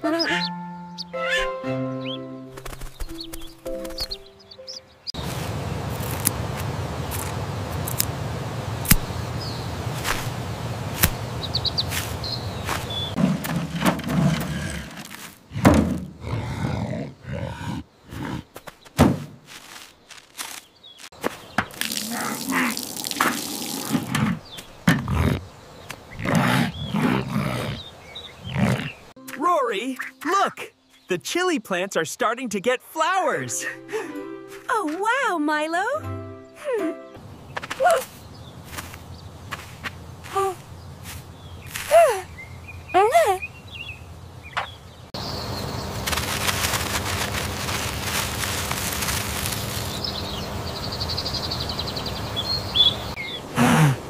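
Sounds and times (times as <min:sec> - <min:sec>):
dense crackling rustle: 0:05.1 - 0:15.5, 0:45.2 - 0:51.6.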